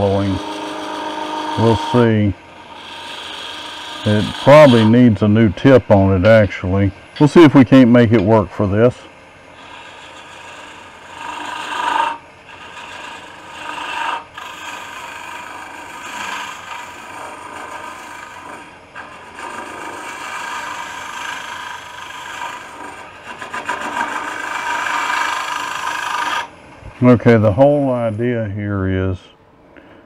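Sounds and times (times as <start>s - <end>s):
lathe tool cutting wood: 0.0s - 6.0s, 9.6s - 26.5s.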